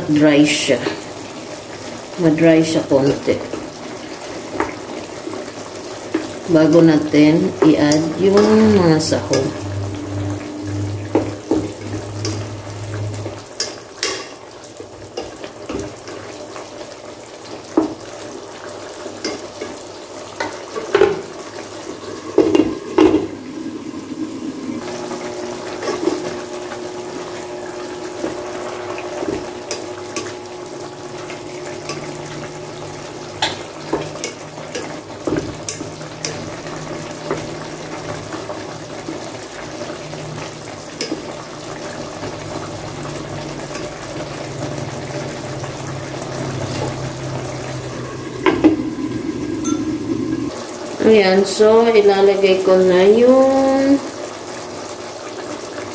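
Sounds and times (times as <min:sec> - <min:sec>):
stew bubbling in a pot: 0:00.0 - 0:51.6.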